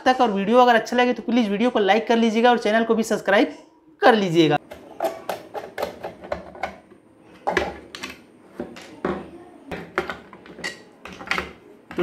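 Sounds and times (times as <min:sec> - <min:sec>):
plastic clicks and knocks: 0:04.7 - 0:12.0.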